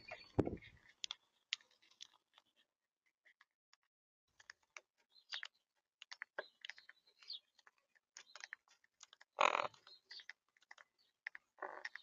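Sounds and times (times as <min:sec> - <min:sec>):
beaks cracking seeds: 0:04.3 - 0:12.0.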